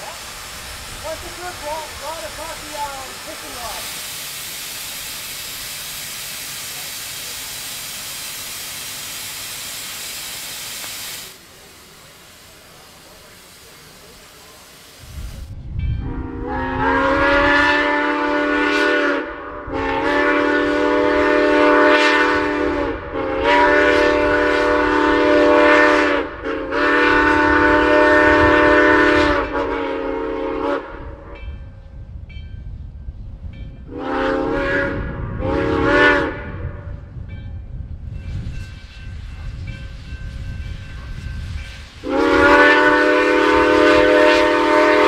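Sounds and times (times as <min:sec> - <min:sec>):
steam hissing: 0:00.0 - 0:15.6, 0:16.2 - 0:31.3, 0:38.1 - 0:45.0
steam whistle blasts: 0:16.0 - 0:31.4, 0:33.9 - 0:37.0, 0:42.0 - 0:45.0.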